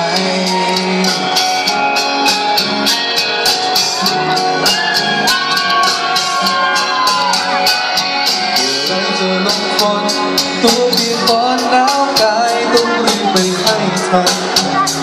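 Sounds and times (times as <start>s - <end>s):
man singing into microphone: 0.0s - 2.0s, 8.3s - 15.0s
backing music with steady beat: 0.0s - 15.0s.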